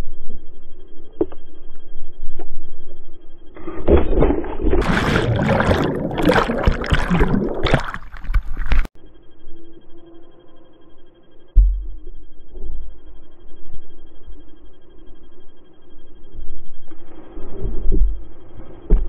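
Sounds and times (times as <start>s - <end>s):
water bubbling underwater: 3.9s - 8.9s.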